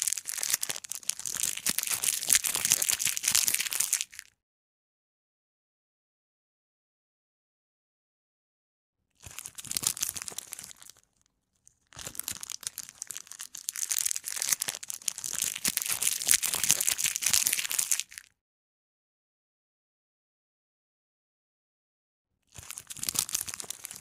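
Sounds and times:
plastic packaging crinkling: 0.0s - 4.3s, 9.2s - 18.3s, 22.6s - 24.0s.

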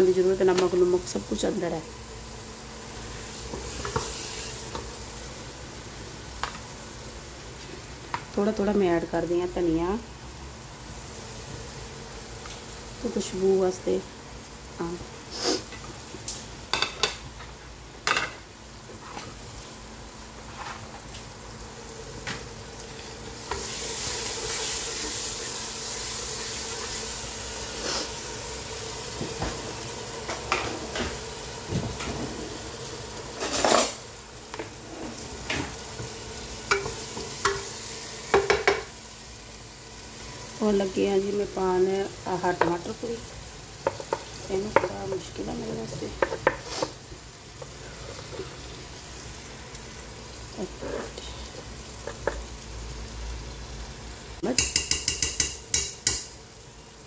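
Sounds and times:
spices sizzling in a pan: 0.0s - 57.0s
wooden spatula knocking pan: 54.6s - 56.3s.

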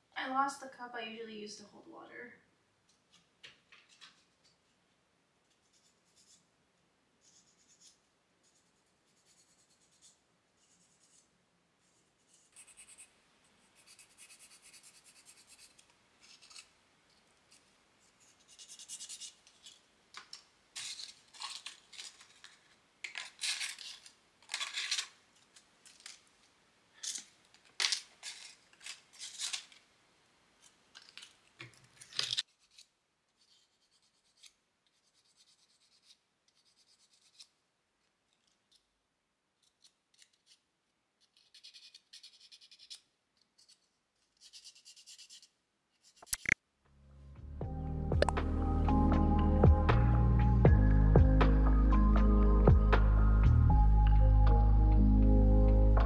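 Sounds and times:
sandpaper scratching: 7.2s - 13.1s, 13.7s - 16.7s, 17.5s - 19.8s, 32.2s - 37.5s, 41.2s - 43.0s, 43.6s - 46.5s.

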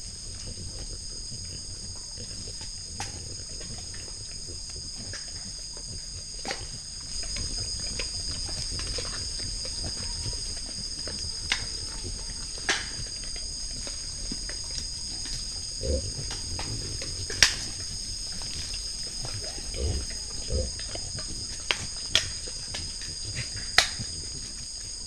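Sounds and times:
crickets trilling: 0.0s - 25.0s
sharp clicks and cracks: 12.6s - 13.1s, 17.3s - 17.8s, 21.7s - 24.1s
low animal grunt: 14.9s - 24.4s.

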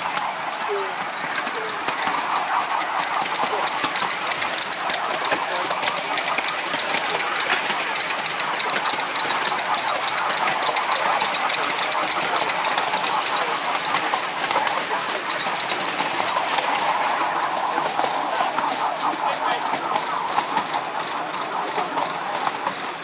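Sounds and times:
steam locomotive chuffing: 0.0s - 23.0s
train wheels clattering on rails: 0.0s - 23.0s.

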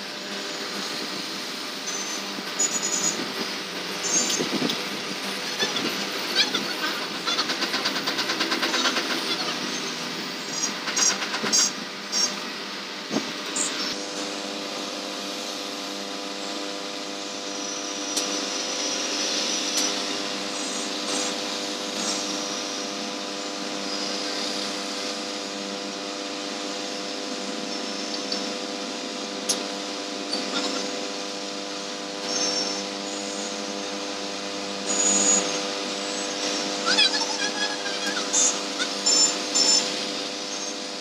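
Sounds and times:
hot air blower hum and hiss: 0.0s - 41.0s.

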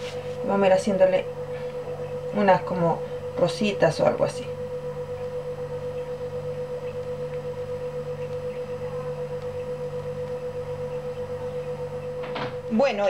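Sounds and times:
steady high tone: 0.0s - 13.0s
steady hum: 0.0s - 13.0s.

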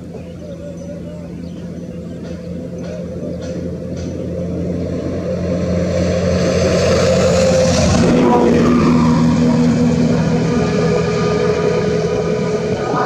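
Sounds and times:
motor engine running: 0.0s - 13.0s.

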